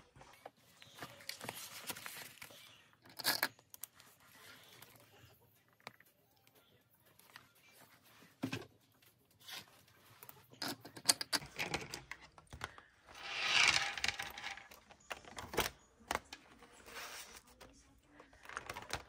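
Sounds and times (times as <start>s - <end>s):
binder pages rustling: 0.4s - 2.6s, 12.4s - 19.0s.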